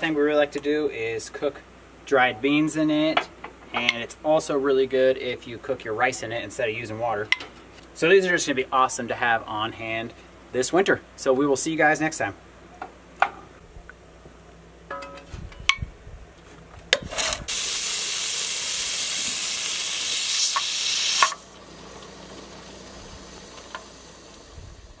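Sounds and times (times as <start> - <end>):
steam hissing from vent: 17.4 - 25.0.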